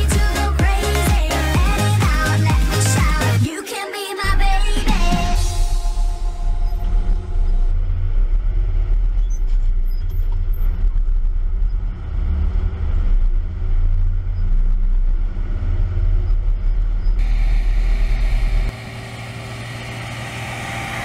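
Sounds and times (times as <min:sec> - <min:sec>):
tractor diesel engine rumbling: 0:04.4 - 0:21.0.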